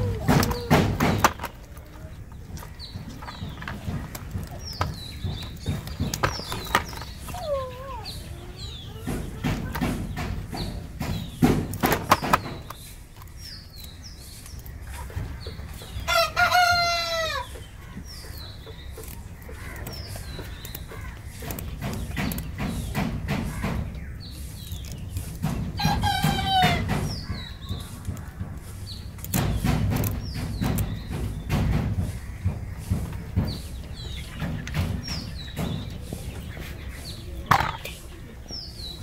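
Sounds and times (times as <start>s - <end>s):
small birds chirping: 0.0s - 39.0s
scissors clicking and scraping: 18.9s - 22.5s.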